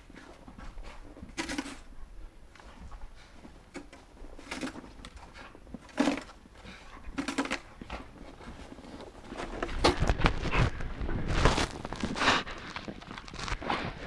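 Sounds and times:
footsteps crunching in snow: 8.4s - 14.0s.

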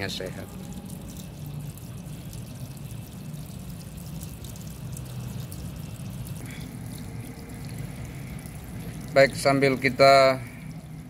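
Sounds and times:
water pouring onto stone: 0.0s - 11.0s.

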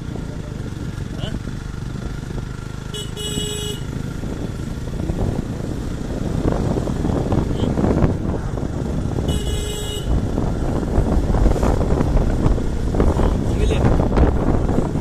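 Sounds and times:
motorcycle engine and wind rumble: 0.0s - 15.0s
horn beeps: 3.0s - 3.9s, 9.3s - 10.2s.

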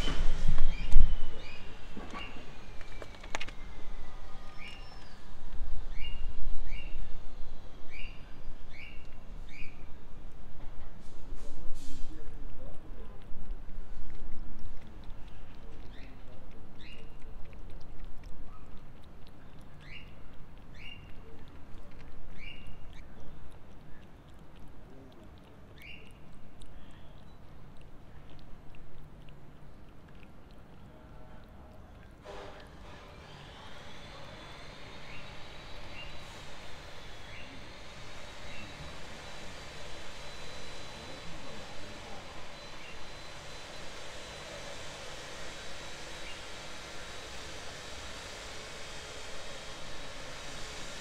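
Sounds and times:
cat chewing wet food: 0.0s - 50.8s
small bird chirping: 0.6s - 7.0s, 7.9s - 9.9s, 15.8s - 17.2s, 19.8s - 21.2s, 22.3s - 24.0s, 25.7s - 28.4s, 42.5s - 43.6s.

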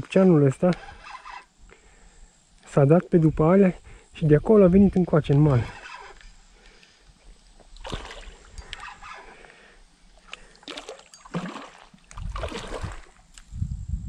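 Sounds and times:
fish splashing in water: 7.8s - 9.0s, 10.3s - 13.3s.

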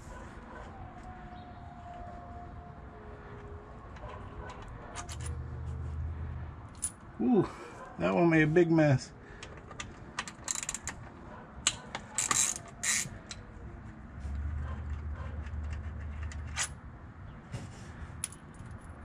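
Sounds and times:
hand ratchet clicking: 9.4s - 11.0s, 11.7s - 13.4s.

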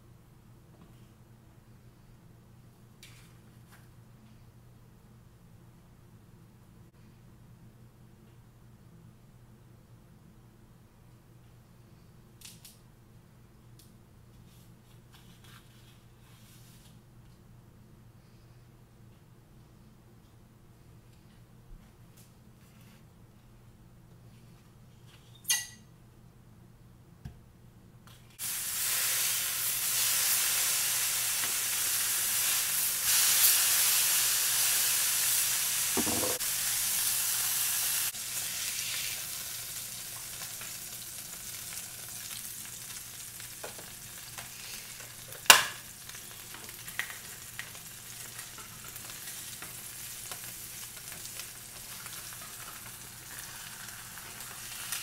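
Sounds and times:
patty sizzling in grill pan: 28.4s - 55.0s.

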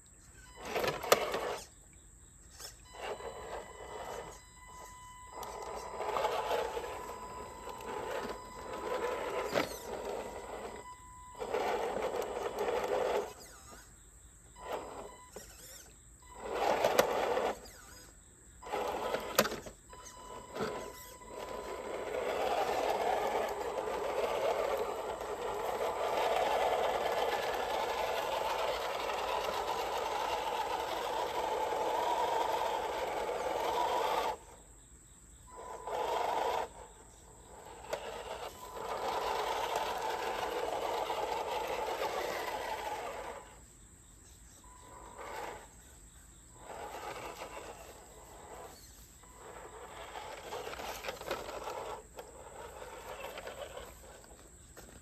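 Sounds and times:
toy truck electric motor whine: 0.2s - 55.0s.

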